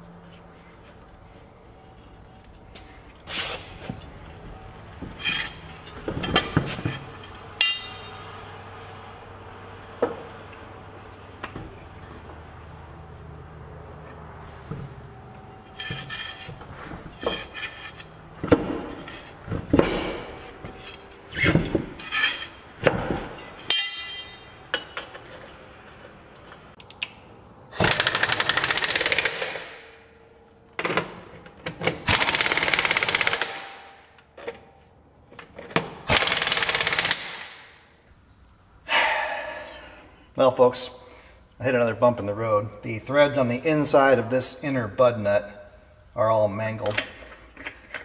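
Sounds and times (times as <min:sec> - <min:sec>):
impact wrench bursts: 0:27.7 - 0:29.8, 0:31.9 - 0:33.9, 0:36.0 - 0:37.6.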